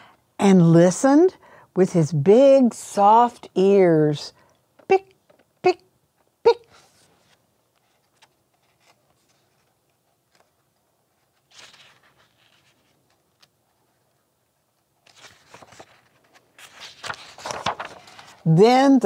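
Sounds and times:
soft rustles: 6.7 - 18.4.

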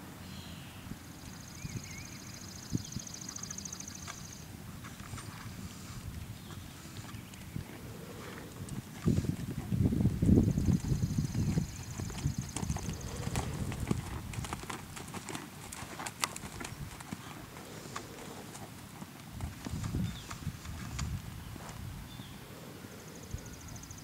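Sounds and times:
horse hoofbeats on sand: 10.5 - 21.8.

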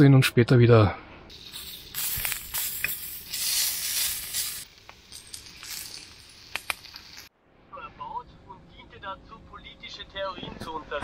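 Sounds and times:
sausages sizzling in a frying pan: 1.3 - 7.3.

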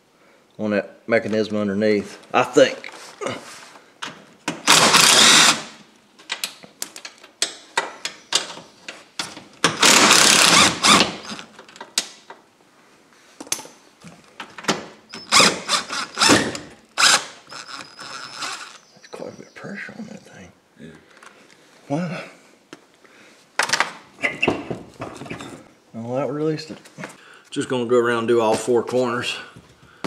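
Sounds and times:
cordless drill spinning: 4.6 - 5.7, 9.7 - 11.6, 15.1 - 18.9.

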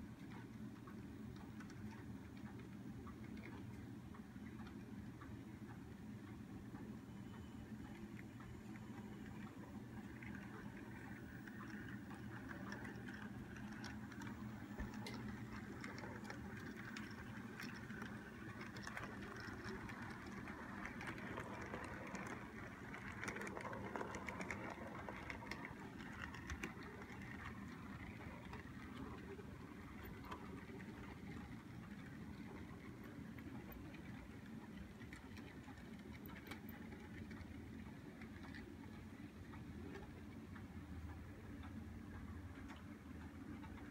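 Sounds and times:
model train hum: 7.2 - 40.2
wheels clicking over rails: 9.6 - 40.2.

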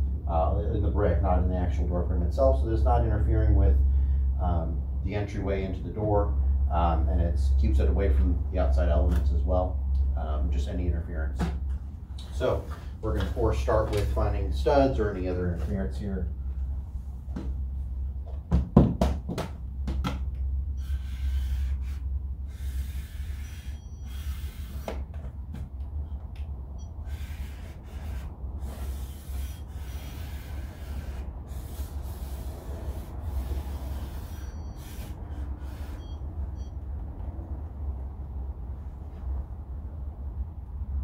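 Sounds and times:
steady low hum: 0.0 - 41.0
stud finder rubbing over wall: 20.8 - 25.1, 27.0 - 36.2
short high beeps: 23.4 - 24.6, 34.3 - 35.0, 35.8 - 36.8.

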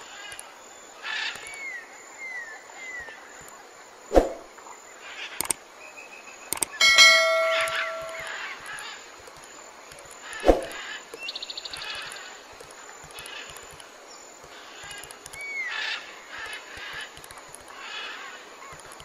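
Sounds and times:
notification bell ringing: 6.8 - 8.4.

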